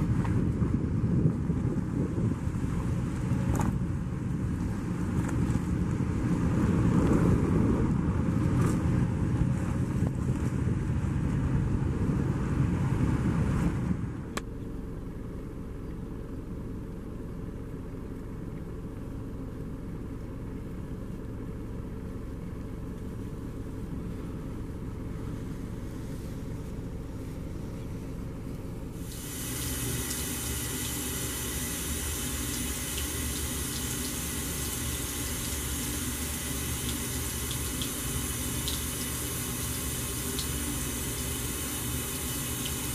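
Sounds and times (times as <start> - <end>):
car cabin rumble: 0.0 - 29.3
faucet stream into sink: 29.0 - 42.9.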